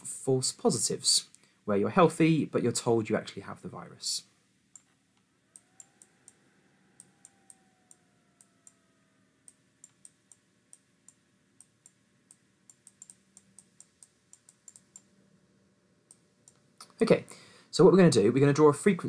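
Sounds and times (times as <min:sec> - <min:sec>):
pen clicking on tablet: 0:09.5 - 0:15.1.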